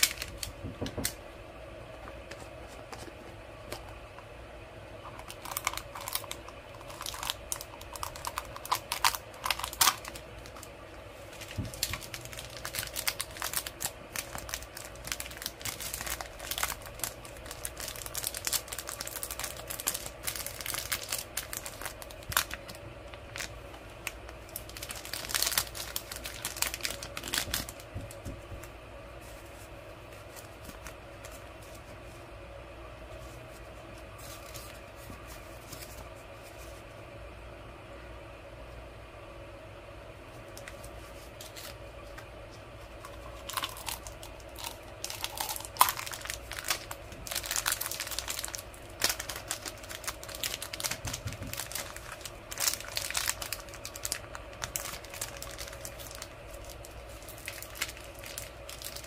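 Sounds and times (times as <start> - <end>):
plastic sachet crinkling: 0.0 - 1.2, 5.0 - 28.2, 43.0 - 59.0.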